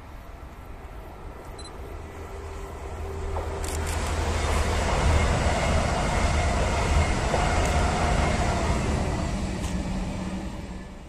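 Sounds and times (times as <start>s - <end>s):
high-speed train passing: 0.0s - 11.0s.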